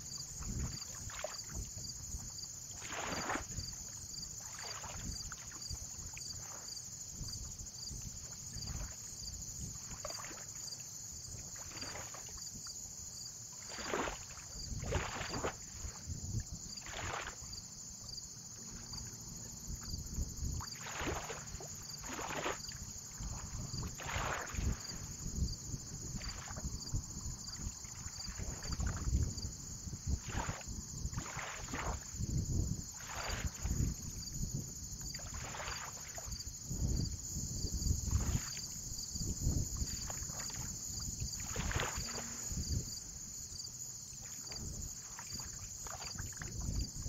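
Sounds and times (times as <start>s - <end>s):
water sloshing and splashing: 0.0s - 37.0s, 37.7s - 47.0s
low wind rumble: 36.5s - 45.0s.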